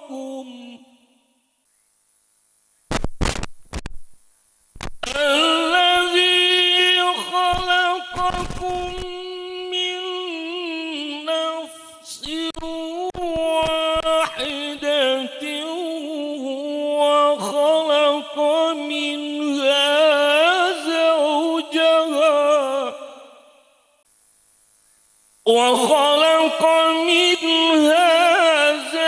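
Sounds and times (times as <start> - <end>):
man chanting through a microphone: 5.0 - 23.2, 25.5 - 29.0.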